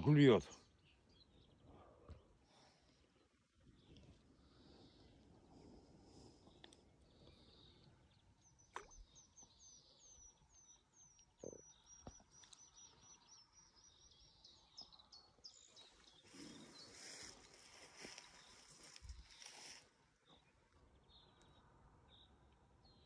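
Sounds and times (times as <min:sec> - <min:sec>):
songbird singing: 0:00.0 - 0:23.0.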